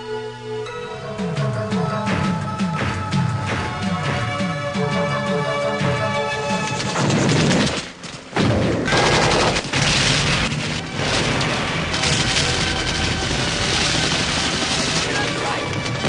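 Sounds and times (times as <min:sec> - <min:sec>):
film score music: 0:00.0 - 0:16.0
explosions: 0:06.6 - 0:16.0
rapid gunfire: 0:06.6 - 0:16.0.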